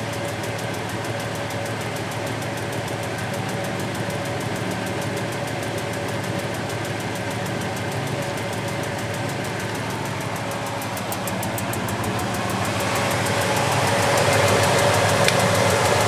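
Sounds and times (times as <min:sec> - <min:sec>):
washing machine drum spinning: 0:08.4 - 0:16.0.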